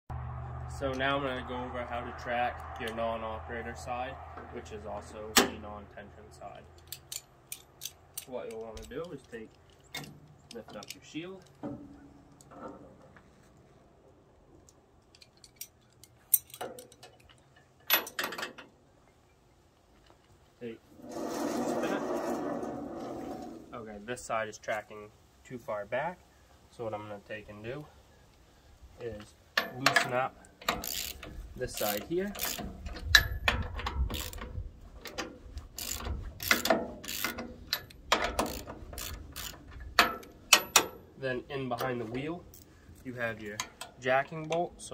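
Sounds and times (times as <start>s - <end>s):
metal clicks of wrenches on steel: 6.6s - 12.8s, 15.0s - 18.7s, 29.5s - 41.0s, 43.4s - 44.9s
ratchet wrench clicking: 30.6s - 34.4s, 35.7s - 40.9s.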